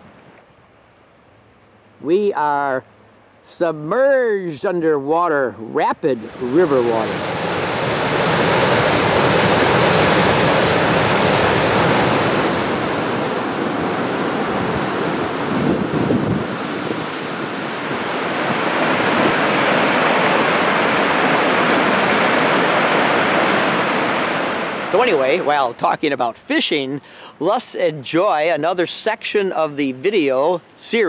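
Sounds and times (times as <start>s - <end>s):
river rushing through rapids: 6.2s - 25.8s.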